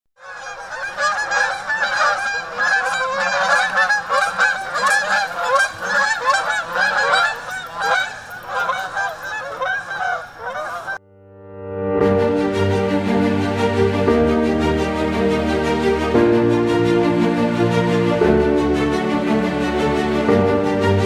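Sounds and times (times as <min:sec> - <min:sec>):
geese honking: 0:00.2 - 0:11.0.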